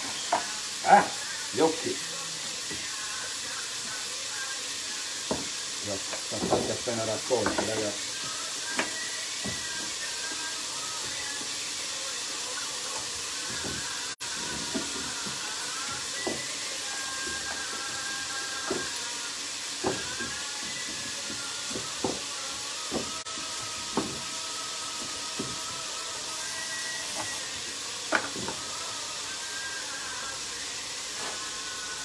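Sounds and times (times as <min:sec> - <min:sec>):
onions sizzling in oil: 0:00.0 - 0:32.0.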